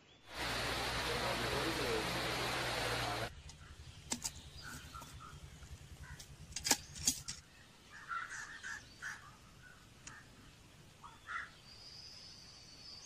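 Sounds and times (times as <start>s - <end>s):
quiet outdoor ambience: 0.0s - 13.0s
faint bird chirps: 3.5s - 6.2s.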